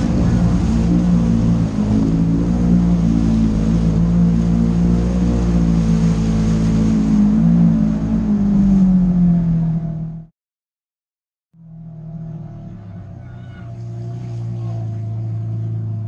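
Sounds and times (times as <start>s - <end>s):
water splashing: 0.0s - 9.3s
vehicle engine running under load: 0.0s - 10.3s, 11.6s - 16.0s.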